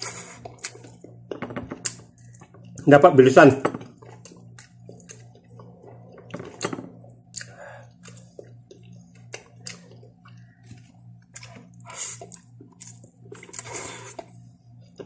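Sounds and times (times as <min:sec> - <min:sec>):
person chewing noodles: 0:00.0 - 0:02.8, 0:03.9 - 0:15.0
steady low hum: 0:00.0 - 0:15.0.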